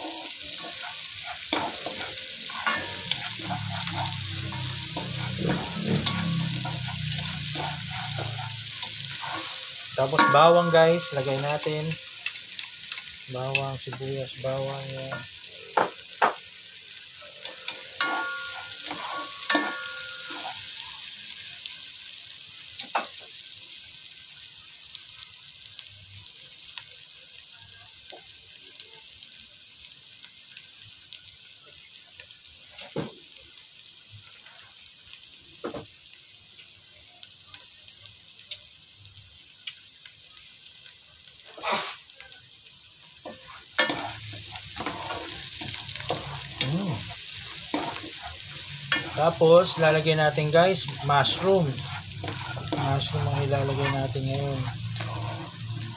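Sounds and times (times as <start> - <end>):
garlic and onion sizzling in butter: 0.0 - 55.9.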